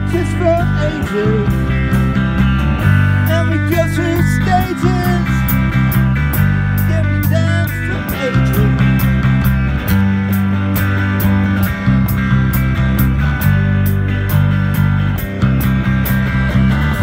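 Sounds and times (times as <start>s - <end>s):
man singing into a microphone: 0.0s - 1.9s, 3.2s - 5.5s, 6.8s - 9.0s
electric bass: 0.0s - 17.0s.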